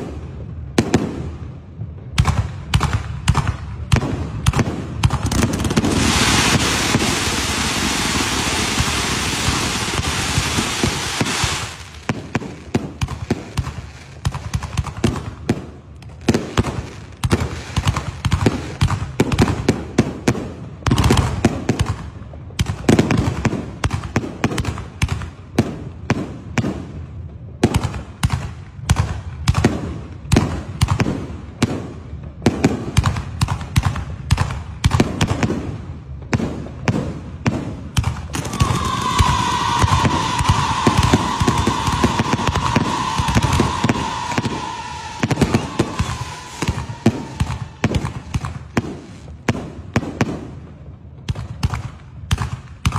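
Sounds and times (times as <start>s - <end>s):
firework bangs and cracks: 0.0s - 52.9s
firework fountain hissing: 4.9s - 20.2s, 38.0s - 49.5s.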